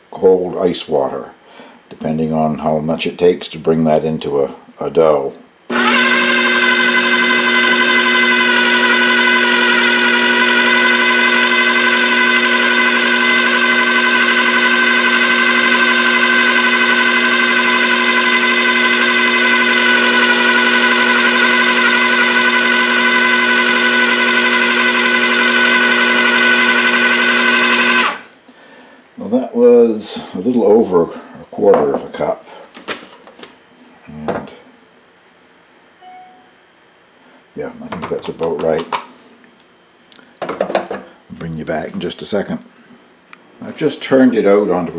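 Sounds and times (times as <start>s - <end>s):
food processor motor running: 5.7s - 28.3s.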